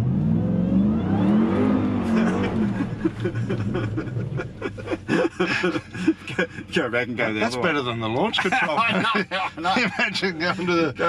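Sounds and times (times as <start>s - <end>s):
truck engine revving: 0.0s - 5.2s.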